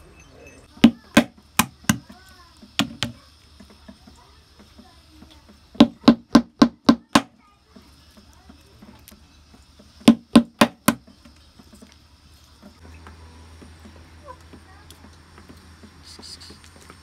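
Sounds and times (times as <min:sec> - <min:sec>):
metal pounder cracking walnuts: 0:00.8 - 0:03.7, 0:09.9 - 0:11.5.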